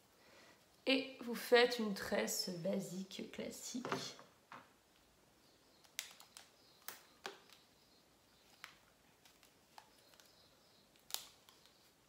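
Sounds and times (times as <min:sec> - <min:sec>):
clicks and rustles of braiding hair: 0:08.4 - 0:12.0.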